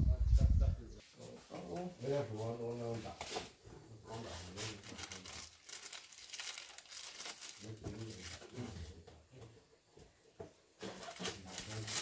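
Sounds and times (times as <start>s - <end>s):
low voice: 0.0s - 1.9s
rustling and crinkling handling: 1.2s - 9.0s, 10.8s - 12.0s.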